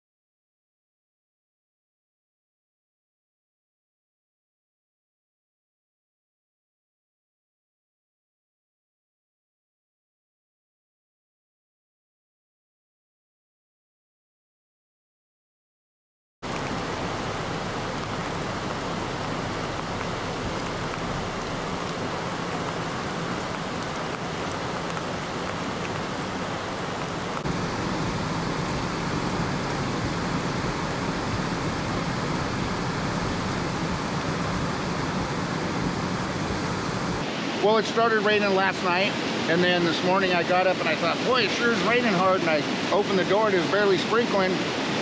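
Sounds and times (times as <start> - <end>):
falling rain: 16.4 - 45.0
river torrent roaring: 16.4 - 45.0.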